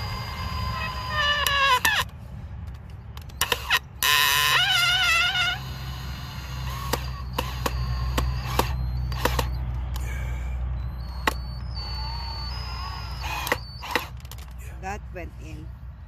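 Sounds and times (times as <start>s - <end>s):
drill motor hum: 0.0s - 2.1s, 3.2s - 14.4s
sharp clicks: 6.6s - 10.1s, 11.0s - 14.6s.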